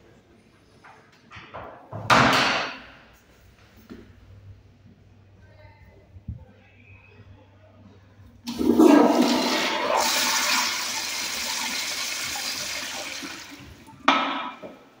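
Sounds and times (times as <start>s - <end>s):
toilet flushing: 8.4s - 14.5s.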